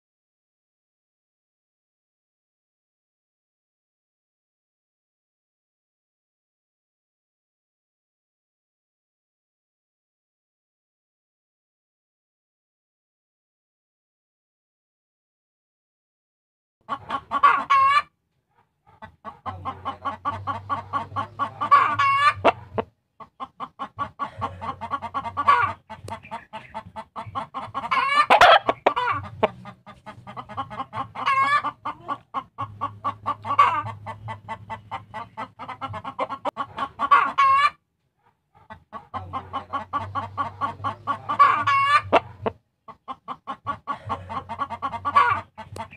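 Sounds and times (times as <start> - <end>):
chicken clucking and squawking: 16.8 - 45.9.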